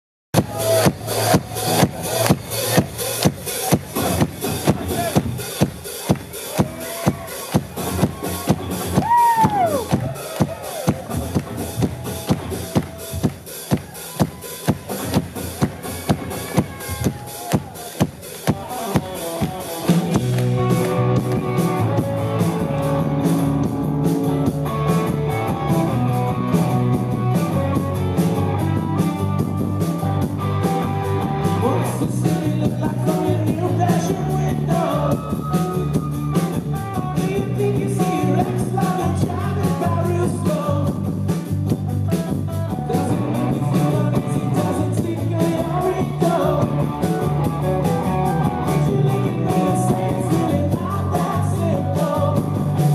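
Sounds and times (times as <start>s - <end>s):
drum beats: 0.3s - 52.9s
rock band playing live: 0.4s - 52.9s
person singing: 31.2s - 41.1s, 42.5s - 52.9s.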